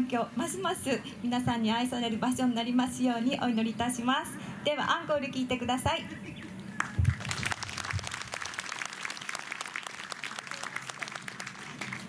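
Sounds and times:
audience clapping: 0:06.8 - 0:12.0.

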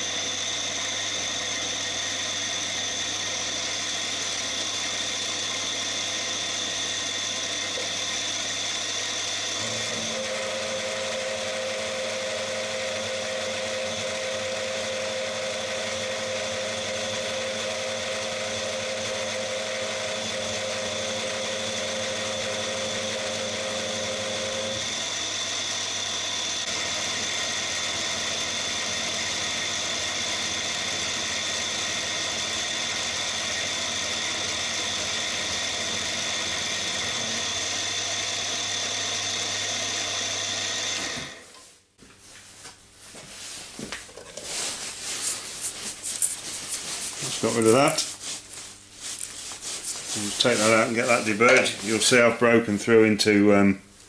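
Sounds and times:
milling machine cutting metal: 0:00.0 - 0:41.4.

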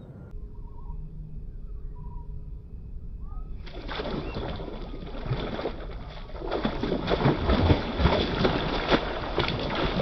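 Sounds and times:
bird chirping: 0:00.0 - 0:04.6
fish thrashing and splashing: 0:03.6 - 0:10.0.

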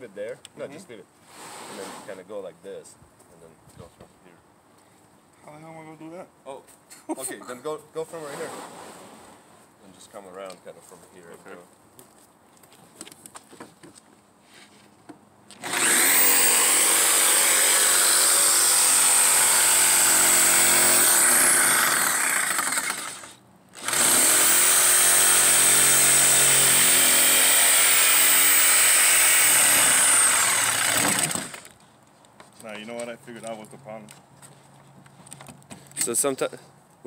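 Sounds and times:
jigsaw cutting plywood: 0:15.6 - 0:31.7.

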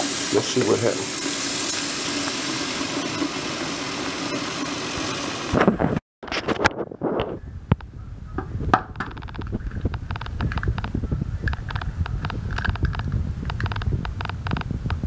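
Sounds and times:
tap water running into a saucepan: 0:00.0 - 0:05.6.

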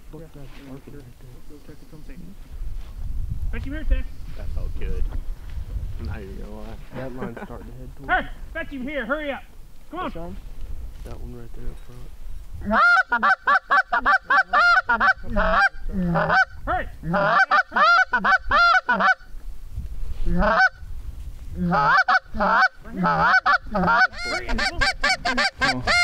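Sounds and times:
goose honking: 0:12.6 - 0:19.3, 0:20.3 - 0:20.8, 0:21.6 - 0:26.0.

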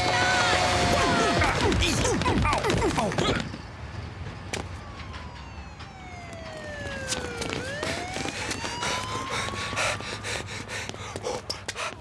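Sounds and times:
siren wailing: 0:04.5 - 0:11.4.

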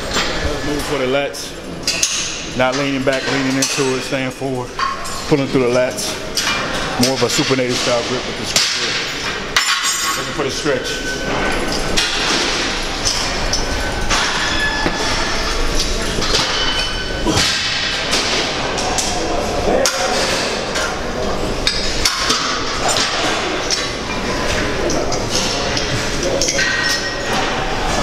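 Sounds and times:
busy gym background: 0:00.0 - 0:28.0
metal weights clanking: 0:01.8 - 0:21.0.

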